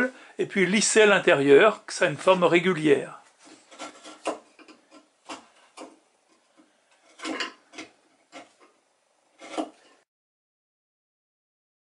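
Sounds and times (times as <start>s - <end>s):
wood chisel scraping wood: 3.3s - 10.1s.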